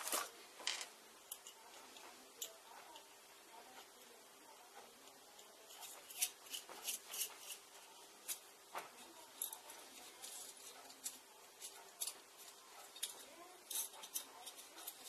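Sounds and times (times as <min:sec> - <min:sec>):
small metal parts clicking: 0:09.3 - 0:15.0.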